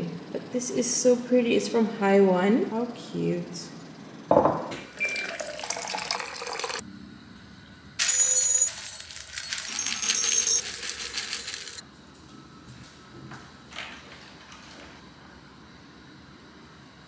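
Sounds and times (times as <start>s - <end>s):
kibble rattling into ceramic bowls: 8.0s - 11.8s.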